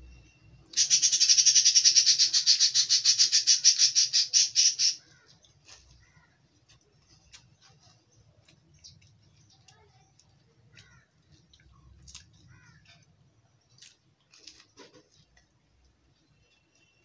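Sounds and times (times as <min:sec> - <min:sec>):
bird chirping rapidly: 0:00.7 - 0:05.0.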